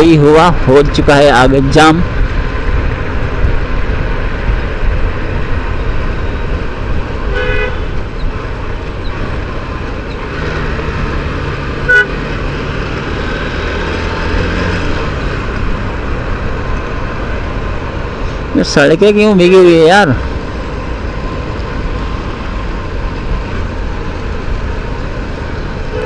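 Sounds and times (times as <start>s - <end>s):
vehicle horns honking: 7.3s - 8.0s, 11.8s - 12.3s.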